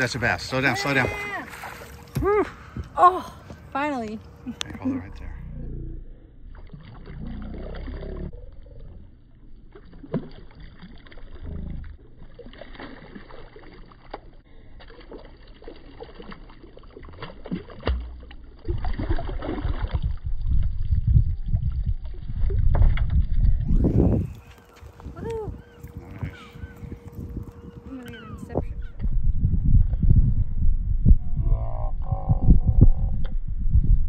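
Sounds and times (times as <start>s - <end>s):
fish splashing and thrashing: 0.0s - 2.9s, 6.4s - 28.5s
water lapping: 0.0s - 5.4s, 6.4s - 20.9s, 23.8s - 29.0s
low rumble on microphone: 4.4s - 12.4s, 17.8s - 34.0s.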